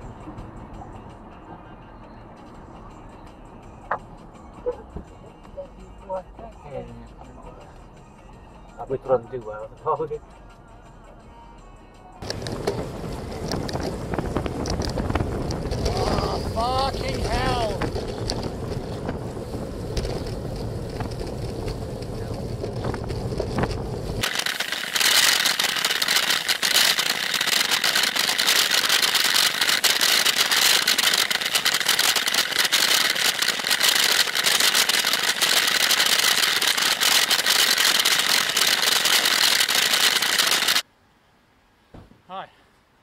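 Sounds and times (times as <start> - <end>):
low wind rumble: 12.2 - 39.4
tyre hiss on wet road: 18.0 - 40.8
camera mount rattling: 22.8 - 40.8.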